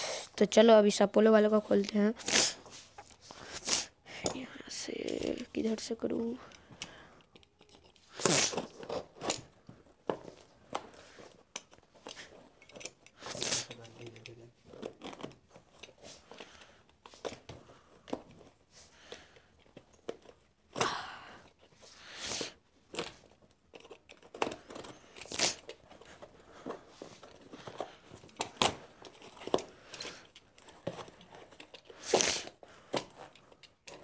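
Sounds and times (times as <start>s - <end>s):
plastic and cardboard tearing: 2.2s - 2.7s, 8.1s - 9.5s, 22.4s - 34.0s
knife cutting plastic and cardboard: 7.3s - 20.8s, 21.5s - 34.0s.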